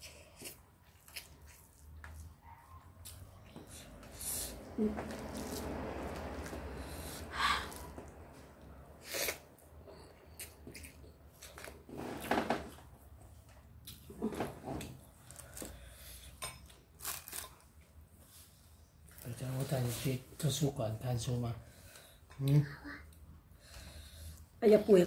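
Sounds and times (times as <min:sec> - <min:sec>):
person chewing: 0:00.0 - 0:02.4, 0:09.0 - 0:09.5, 0:10.1 - 0:11.9.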